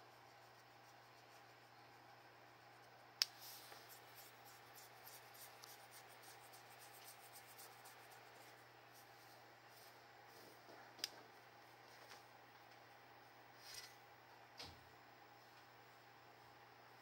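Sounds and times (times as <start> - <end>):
fingers scratching scaly skin: 3.2 - 9.1.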